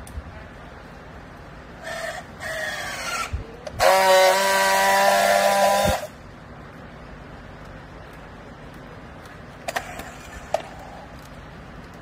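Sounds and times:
strapping tool welding hum: 1.8 - 6.2.

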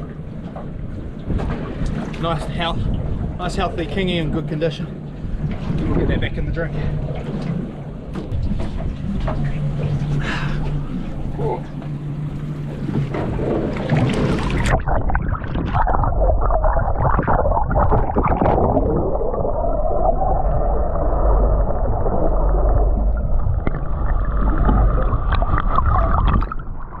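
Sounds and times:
muffled underwater water rush: 0.0 - 27.0
water splash: 12.7 - 27.0.

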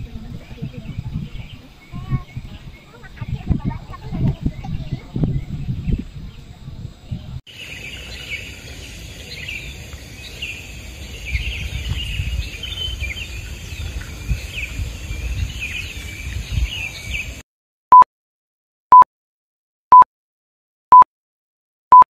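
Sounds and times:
small birds chirping: 0.0 - 17.4.

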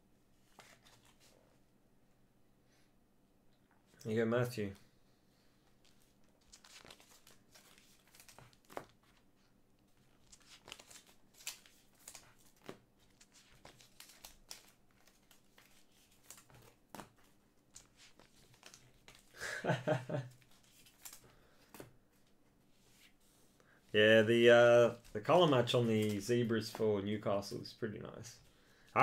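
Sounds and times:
crinkling plastic card sleeves: 5.7 - 27.6.

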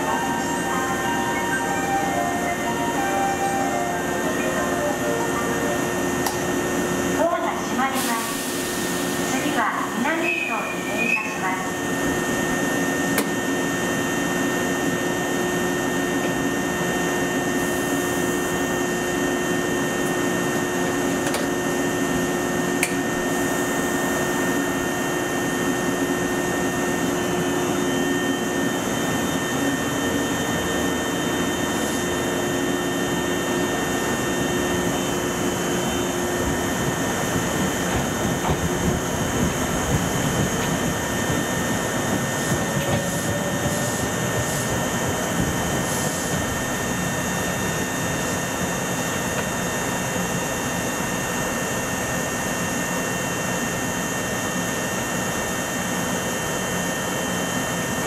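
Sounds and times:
train pulling away rumble: 0.0 - 11.3, 17.4 - 50.2
train machinery whirring hum: 0.0 - 58.0.

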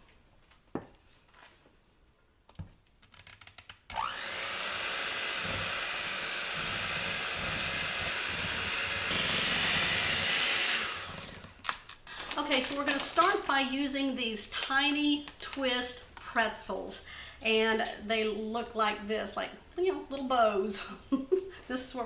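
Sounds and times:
electric hand mixer whining: 3.9 - 11.6.

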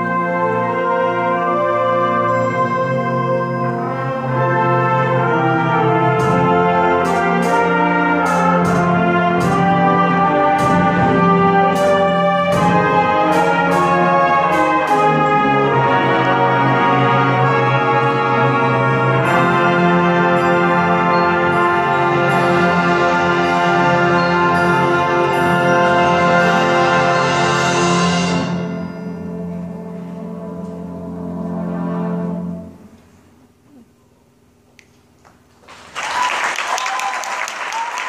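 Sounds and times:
concert band playing: 0.0 - 32.9
sharp percussion strikes: 5.2 - 18.5.

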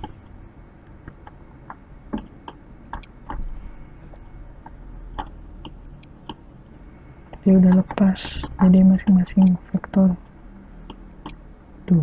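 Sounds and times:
low steady hum: 0.0 - 12.0
computer mouse clicking: 2.1 - 3.5, 10.8 - 11.4.

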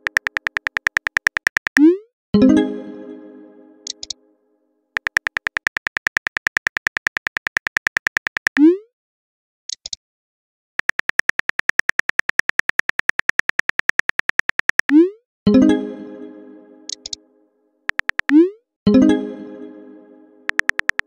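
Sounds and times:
phone keyboard typing clicks: 0.0 - 1.9, 3.9 - 4.2, 5.0 - 8.6, 10.8 - 15.0, 16.9 - 17.2, 17.9 - 18.4, 20.5 - 21.0.

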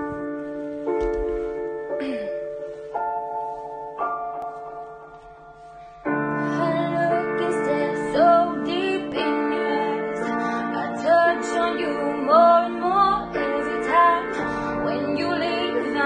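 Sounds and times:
piano backing: 0.0 - 16.0
woman singing: 6.4 - 16.0.

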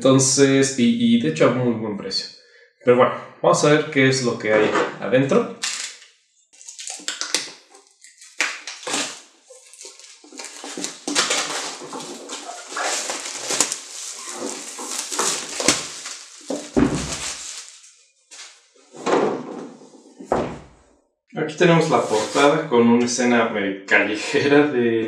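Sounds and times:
shrink wrap crackling and rustling: 5.6 - 19.0
box thump: 15.2 - 17.5.

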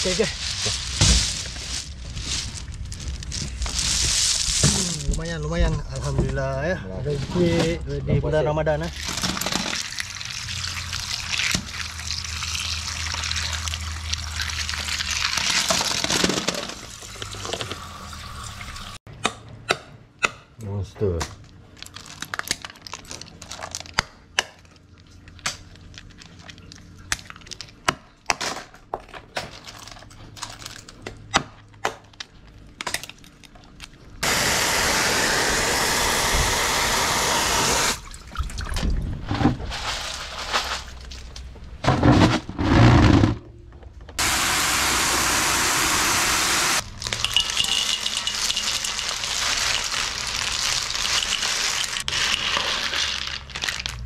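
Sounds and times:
running water over snails: 8.9 - 15.8.

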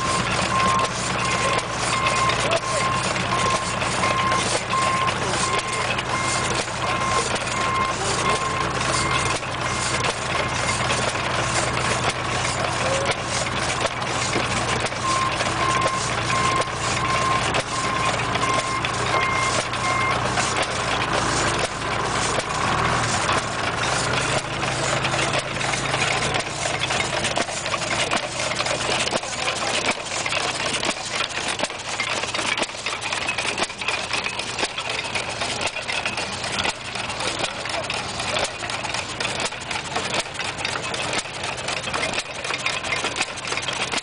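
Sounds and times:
reversing beeper beeps: 0.0 - 9.9, 15.0 - 20.2
hit-and-miss engine knocking: 0.0 - 44.0
saw blade dragging through log: 0.0 - 44.0.

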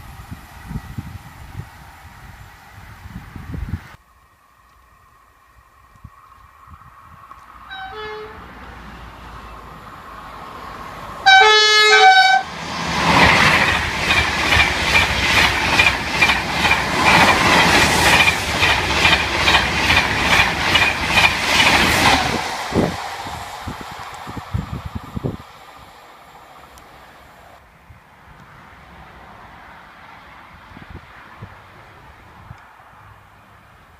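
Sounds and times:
train rushing past: 6.6 - 27.6
train horn: 7.7 - 8.6, 11.2 - 12.5
clickety-clack of train wheels: 12.1 - 25.4.

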